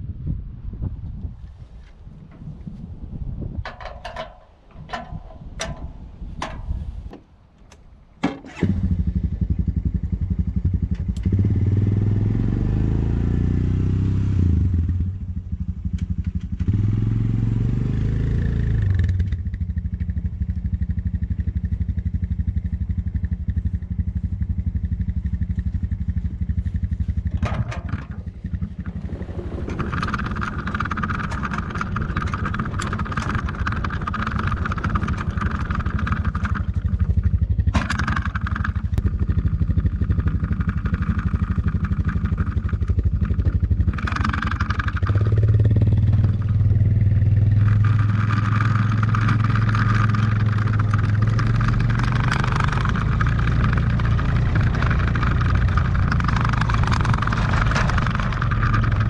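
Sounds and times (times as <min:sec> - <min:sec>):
knocks and clatters: 0:03.6 - 0:08.5, 0:25.8 - 0:46.7, 0:47.5 - 0:59.0
sawmill petrol engine revving: 0:11.0 - 0:15.0, 0:25.4 - 0:59.0
saw carriage whine: 0:43.9 - 0:59.0.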